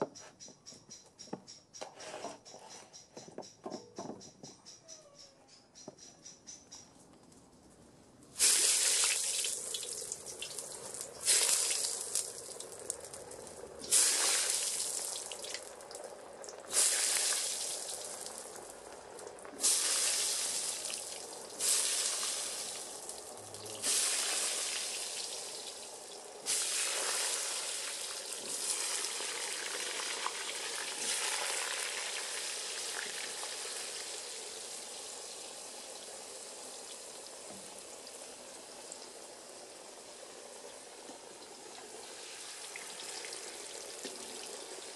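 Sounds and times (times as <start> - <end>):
oil frying with bubbling hiss: 8.2 - 44.9
potatoes sizzling in hot oil: 8.4 - 44.9.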